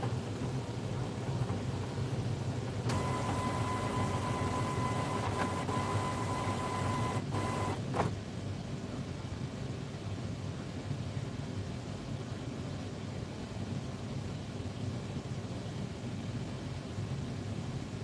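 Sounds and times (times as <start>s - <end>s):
printer mechanical hum: 0.0s - 8.2s
printer motor whine: 2.8s - 8.1s
printer knock: 2.9s - 8.1s.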